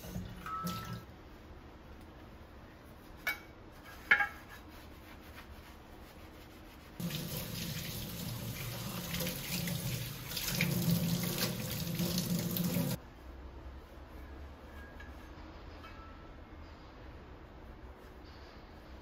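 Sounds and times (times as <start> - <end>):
tap water running into sink: 7.0 - 13.0.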